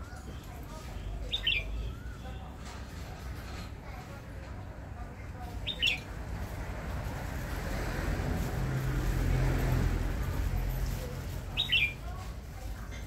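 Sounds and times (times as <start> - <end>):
bird call: 1.3 - 2.4, 5.6 - 6.0, 11.6 - 12.0
passing vehicle engine rumble: 1.8 - 13.0.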